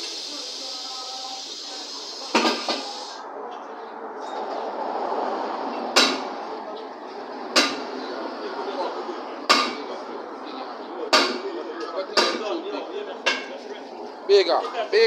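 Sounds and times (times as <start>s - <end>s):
murmur of voices: 0.0s - 15.0s
hammer striking metal: 6.0s - 6.3s.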